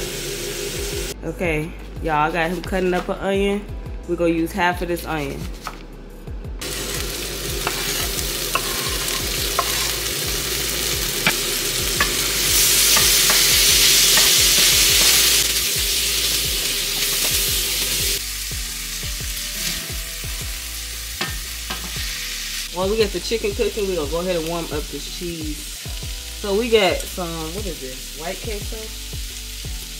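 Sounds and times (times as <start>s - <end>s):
chicken sizzling in a pan: 0.0s - 1.2s, 6.6s - 29.9s
utensil tapping and scraping: 7.6s - 9.9s.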